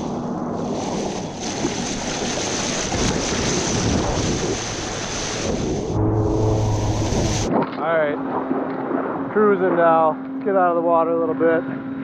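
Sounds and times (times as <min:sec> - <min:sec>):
water rushing past surfboard: 0:00.0 - 0:07.8
wind buffeting microphone: 0:00.2 - 0:10.0.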